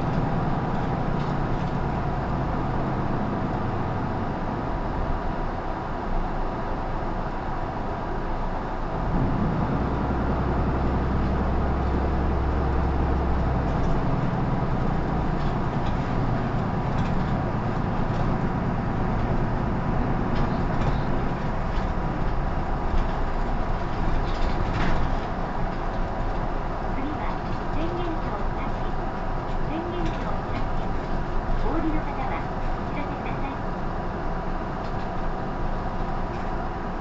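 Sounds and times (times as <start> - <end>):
bus diesel engine running: 0.0 - 37.0
light rattles: 11.2 - 33.4.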